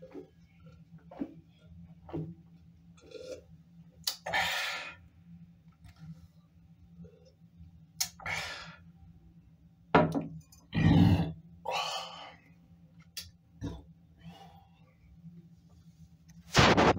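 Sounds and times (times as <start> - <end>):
glass knocking on countertop: 10.0 - 10.3.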